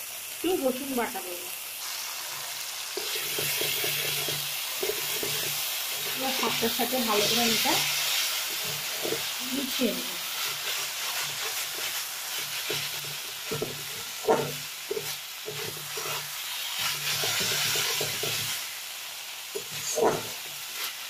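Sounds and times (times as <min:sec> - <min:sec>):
greens sizzling in oil: 0:00.0 - 0:21.0
spatula knocking on pan: 0:03.0 - 0:06.2, 0:12.6 - 0:16.1, 0:19.6 - 0:20.4
spatula scraping metal pan: 0:03.0 - 0:18.6, 0:19.5 - 0:21.0.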